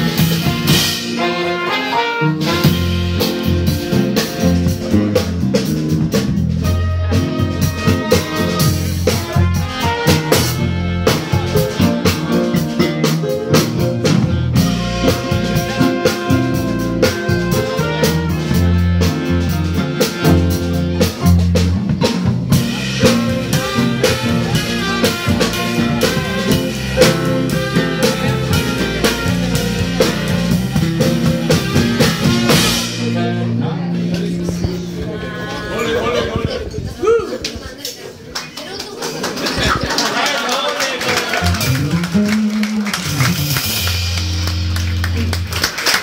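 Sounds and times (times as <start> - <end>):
saxophone: 0.0 - 4.9, 6.6 - 21.4, 22.6 - 33.6
drum kit snare and rimshots: 0.0 - 35.0, 41.3 - 46.0
piano: 0.0 - 36.7
bass: 0.0 - 40.2, 41.0 - 46.0.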